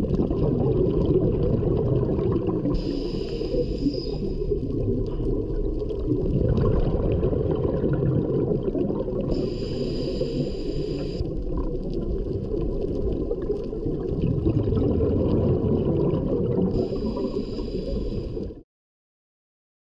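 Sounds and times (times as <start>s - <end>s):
underwater bubbling rumble: 0.0s - 18.6s
regulator inhalation hiss: 2.8s - 4.6s, 9.3s - 11.2s, 16.8s - 18.5s.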